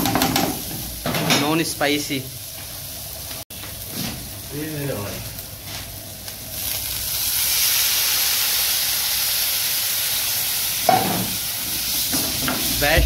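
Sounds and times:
water hissing in a hot pan: 0:06.3 - 0:13.0.

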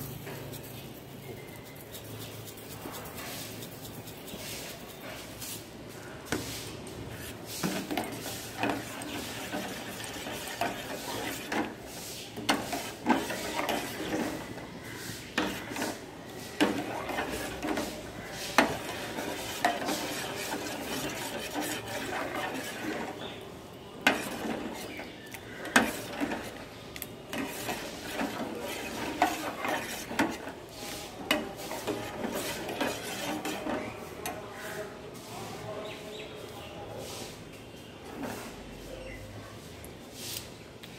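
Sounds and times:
metal spoon scraping a metal pot: 0:07.2 - 0:23.4, 0:24.0 - 0:34.5.

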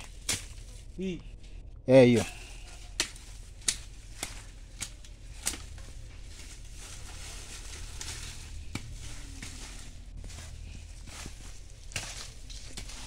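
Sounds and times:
stalks snapping: 0:00.0 - 0:00.8, 0:02.9 - 0:06.6, 0:11.7 - 0:13.0
dry leaves crackling and rustling: 0:00.0 - 0:01.0, 0:02.0 - 0:13.0.

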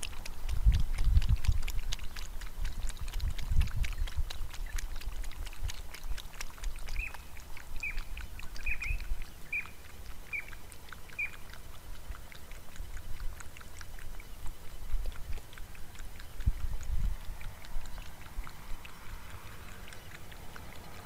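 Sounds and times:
animal lapping water: 0:00.0 - 0:21.0
bird calling: 0:07.0 - 0:11.4.

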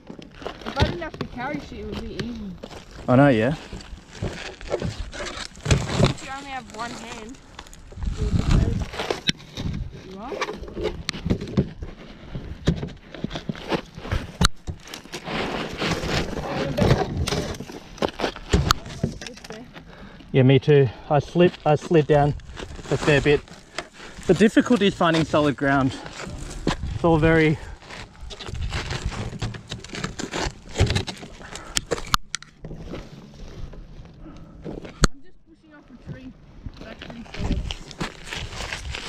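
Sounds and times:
branches cracking: 0:00.0 - 0:20.1, 0:21.6 - 0:35.2, 0:36.8 - 0:39.0
shoes scraping loose ground: 0:00.3 - 0:19.0, 0:21.2 - 0:35.0, 0:36.8 - 0:39.0
footsteps on dry dirt slope: 0:36.2 - 0:39.0.

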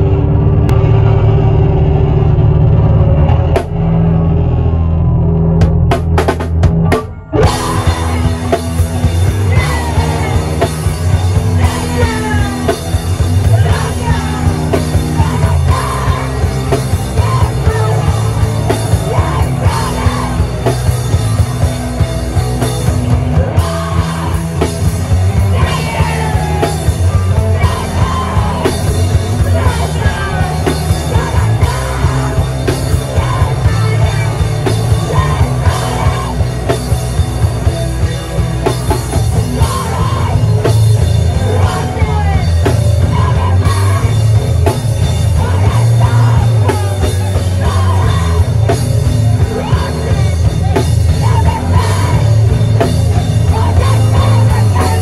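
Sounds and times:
loud fast rock band: 0:00.0 - 0:55.0
shouted screamed vocals: 0:25.3 - 0:36.6.

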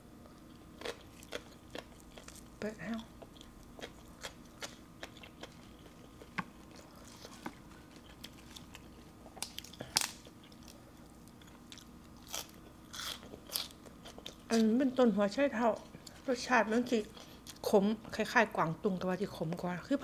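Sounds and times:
greens snapping and tearing: 0:09.4 - 0:10.8.

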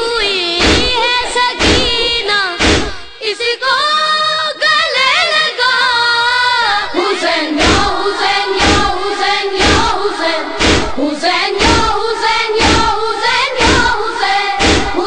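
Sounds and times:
group chanting in unison: 0:00.2 - 0:03.3, 0:04.9 - 0:15.0
chest-beating slaps: 0:00.6 - 0:03.2, 0:07.6 - 0:15.0.

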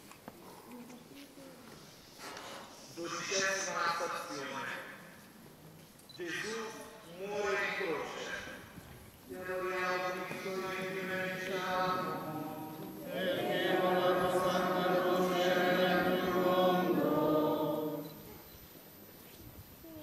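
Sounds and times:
slow chanting: 0:09.3 - 0:18.5.

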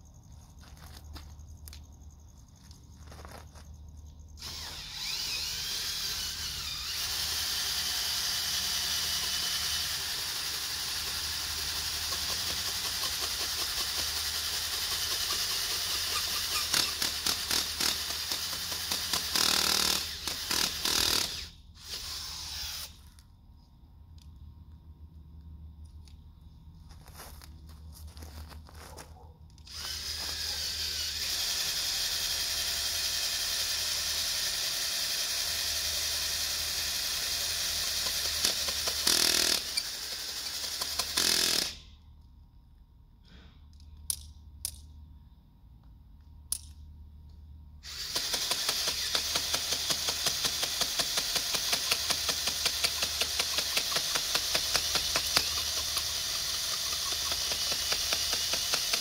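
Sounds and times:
power drill boring into dirt: 0:04.4 - 0:23.1, 0:29.7 - 0:41.9, 0:47.8 - 0:59.0.

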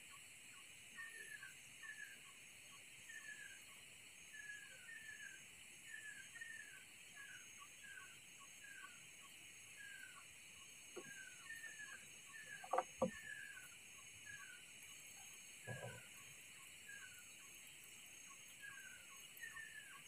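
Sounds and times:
small bird chirping: 0:04.3 - 0:20.0
sharp knocks: 0:12.6 - 0:13.2.

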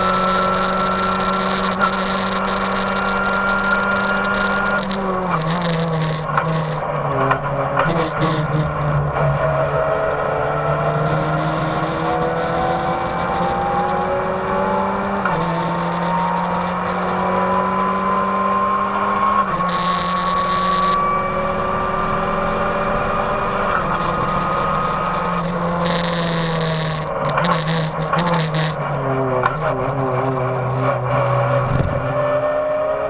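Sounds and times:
race car engine accelerating: 0:00.0 - 0:33.0.

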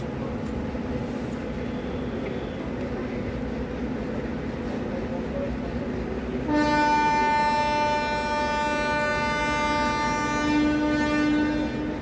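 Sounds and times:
rumble of moving train: 0:00.0 - 0:12.0
train horn long blast: 0:06.4 - 0:12.0.

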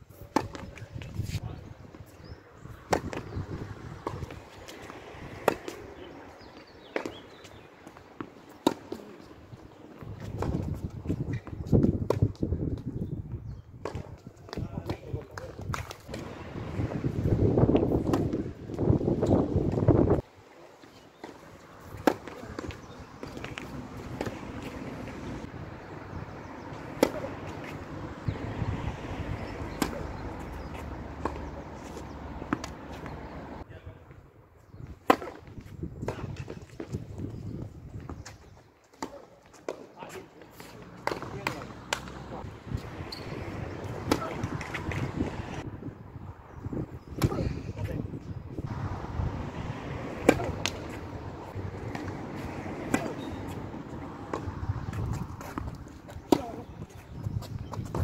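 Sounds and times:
racket striking tennis ball: 0:00.2 - 0:00.9, 0:02.9 - 0:03.4, 0:04.0 - 0:09.2, 0:17.7 - 0:19.8, 0:21.2 - 0:25.5, 0:26.7 - 0:28.4, 0:29.4 - 0:33.6, 0:35.0 - 0:36.9, 0:38.9 - 0:39.9, 0:40.6 - 0:45.6, 0:47.1 - 0:47.4, 0:49.8 - 0:57.0
ball hits and bounces: 0:00.3 - 0:01.1, 0:02.8 - 0:09.3, 0:17.7 - 0:20.2, 0:21.2 - 0:25.4, 0:26.7 - 0:28.4, 0:29.1 - 0:33.4, 0:35.0 - 0:37.0, 0:38.9 - 0:45.6, 0:49.9 - 0:57.0
tennis ball knocks: 0:05.4 - 0:06.1, 0:21.2 - 0:25.4, 0:26.7 - 0:28.4, 0:29.7 - 0:33.2, 0:43.1 - 0:45.4, 0:50.0 - 0:53.6.

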